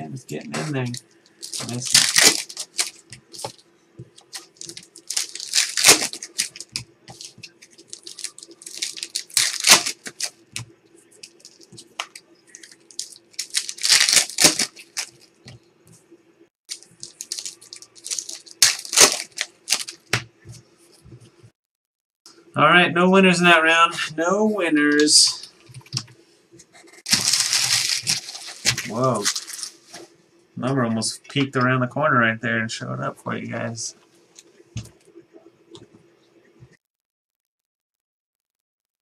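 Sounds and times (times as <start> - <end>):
faint steady hum: 0.0 - 21.6
cards rustling: 0.6 - 10.4, 11.2 - 15.4, 16.7 - 20.2, 27.0 - 30.0
foil wrappers tearing: 0.8 - 3.6, 4.2 - 10.4, 11.2 - 15.4, 16.7 - 20.1, 27.1 - 29.9.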